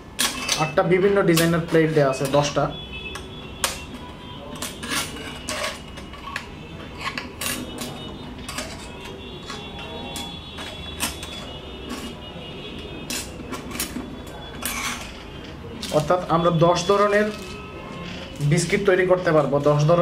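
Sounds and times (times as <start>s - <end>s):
metal discs clinking on wood: 0.2s - 2.4s, 4.6s - 12.2s, 13.0s - 16.1s.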